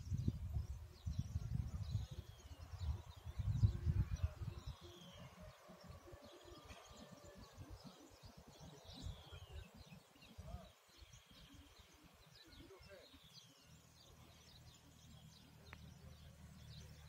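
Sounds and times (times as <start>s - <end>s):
low rumble on microphone: 0.0s - 4.8s
wild birds singing: 0.0s - 17.0s.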